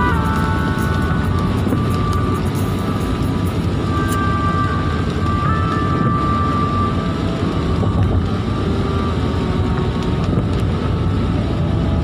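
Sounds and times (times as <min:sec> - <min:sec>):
car engine and tyre rumble: 0:00.0 - 0:12.0
rain on a car: 0:00.0 - 0:12.0.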